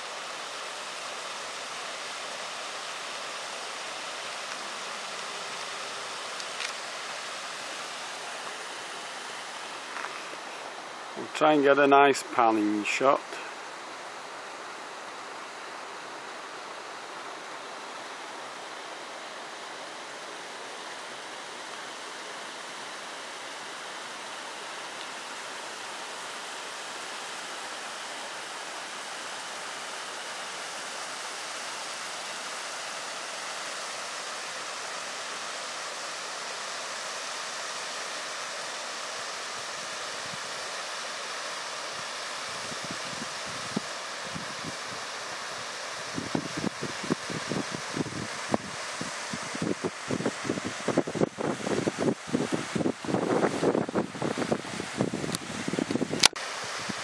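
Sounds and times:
steady rushing noise: 22.8 - 57.0.

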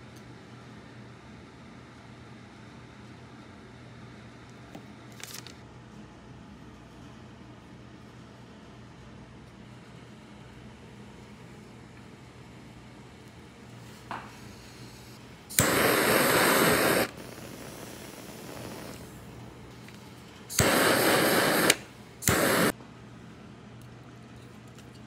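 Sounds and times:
kitchen torch hissing flame: 13.8 - 22.8
torch ignition click: 14.1 - 22.8.

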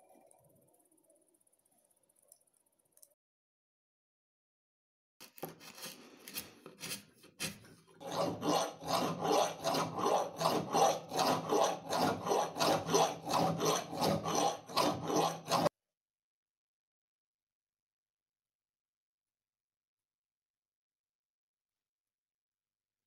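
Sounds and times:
hand file rasping metal: 5.6 - 15.7.

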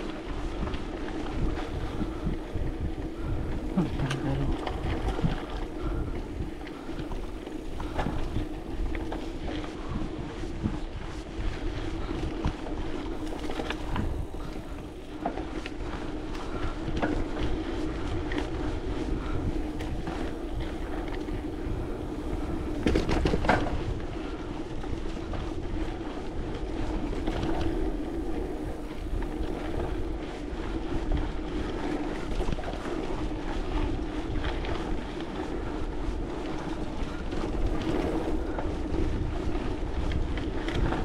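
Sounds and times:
steady low hum: 0.0 - 41.0
wind rumbling on microphone: 0.0 - 41.0.

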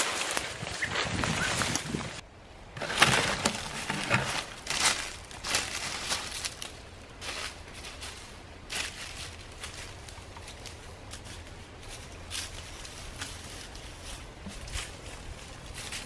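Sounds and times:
footsteps crunching through dry leaves: 0.0 - 2.2, 2.8 - 16.0.

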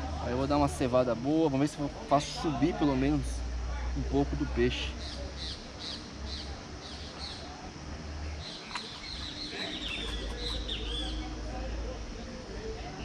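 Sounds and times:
bird chirping: 4.9 - 7.5, 8.3 - 11.4.

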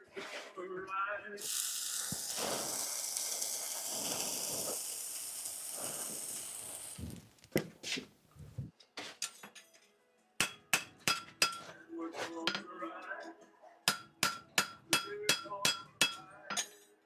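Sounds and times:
hot horseshoe sizzling: 1.4 - 7.6.

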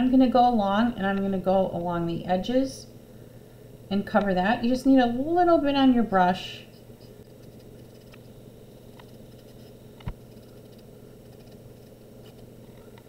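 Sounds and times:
paintbrush ticking on wood: 7.3 - 8.2, 9.0 - 12.4.

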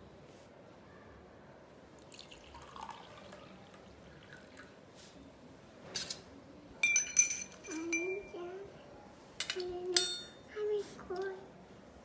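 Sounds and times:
water pouring into a glass: 2.0 - 4.8.

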